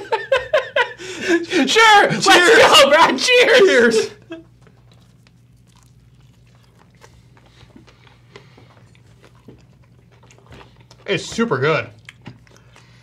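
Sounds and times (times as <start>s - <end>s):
low steady hum: 0.0s - 13.0s
chewing and soft crunches: 4.3s - 13.0s.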